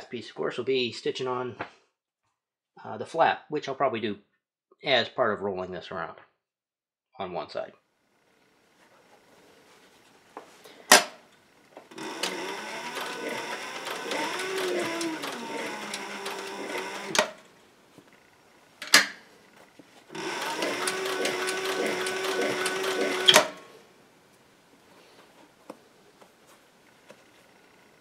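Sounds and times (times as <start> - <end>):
sewing machine stitching leather: 10.9 - 23.8.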